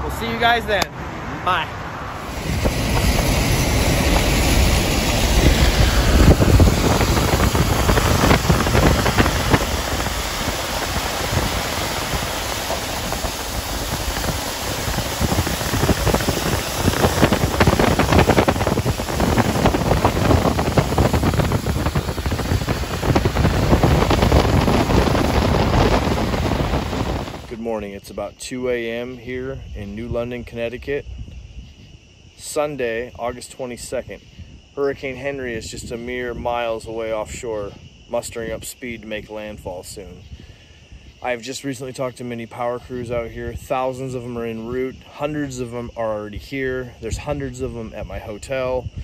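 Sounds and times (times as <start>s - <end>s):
wind buffeting microphone: 1.5s - 27.8s, 29.4s - 32.3s, 42.6s - 49.0s
tyres hissing through water: 2.2s - 27.6s.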